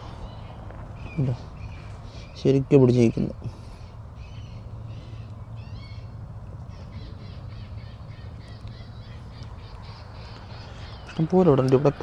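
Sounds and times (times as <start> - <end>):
steady low hum: 0.0 - 12.0
harsh bird squawks over loudspeaker: 6.7 - 12.0.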